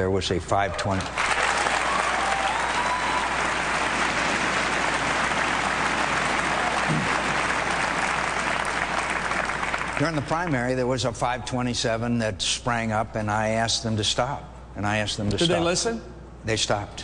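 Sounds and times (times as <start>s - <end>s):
crowd cheers: 0.8s - 9.8s
audience applauding: 1.0s - 10.3s.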